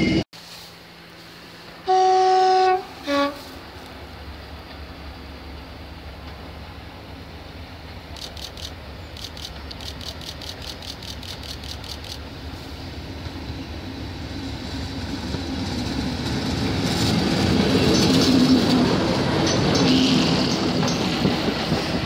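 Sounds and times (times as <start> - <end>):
diesel locomotive engine running: 0.0 - 22.0
rapid high ticking: 8.2 - 12.3.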